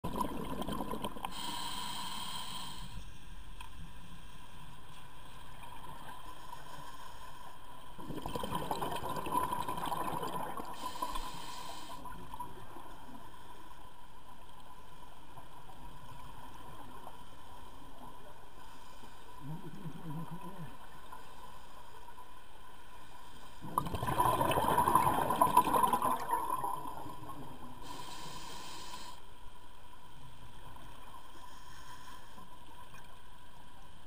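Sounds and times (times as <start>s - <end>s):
muffled underwater wash: 0.0s - 34.0s
regulator bubbles hissing: 0.1s - 2.8s, 8.0s - 12.9s, 23.6s - 29.1s
faint steady whine: 0.1s - 34.0s.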